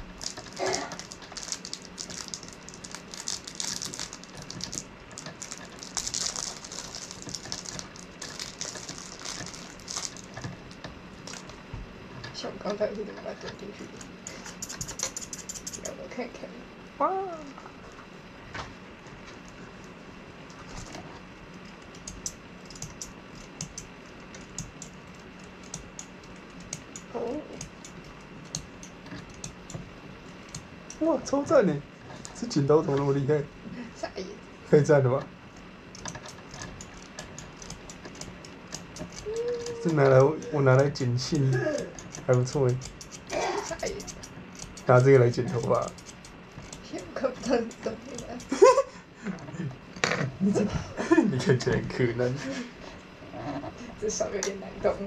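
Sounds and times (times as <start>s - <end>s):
faint low hum: 0.0s - 55.0s
plastic parts clicking and rustling: 0.2s - 11.6s
small tools clicking: 14.2s - 15.9s, 21.8s - 29.8s, 35.9s - 48.7s.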